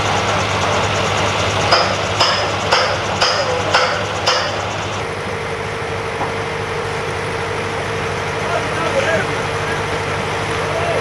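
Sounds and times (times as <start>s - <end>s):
engine running: 0.0s - 11.0s
hammer blows on metal: 1.7s - 4.7s.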